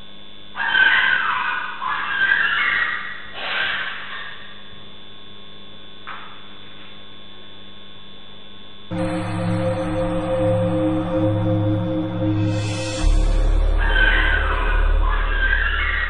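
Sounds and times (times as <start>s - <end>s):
electrical hum: 8.9s - 16.0s
music with held tones: 8.9s - 16.0s.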